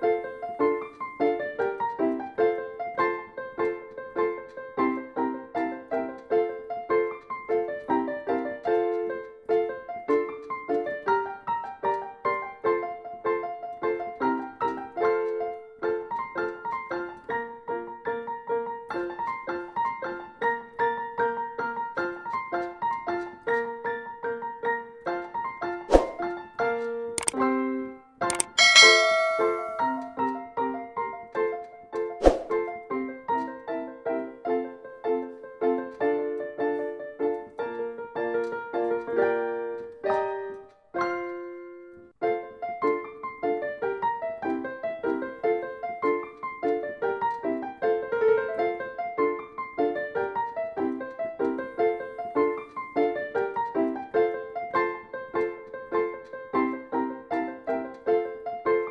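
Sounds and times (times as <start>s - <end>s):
piano music: 0.0s - 58.9s.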